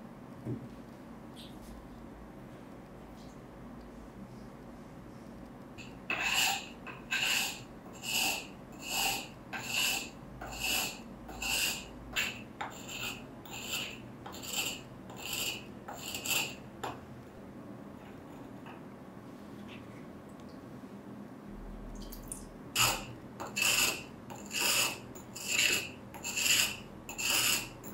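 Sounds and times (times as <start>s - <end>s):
blade sharpening on wet stone: 5.8s - 16.6s, 22.8s - 27.9s.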